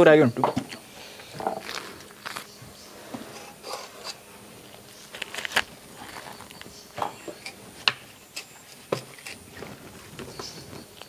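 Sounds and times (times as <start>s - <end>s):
knife crunching through fruit: 7.4s - 10.6s.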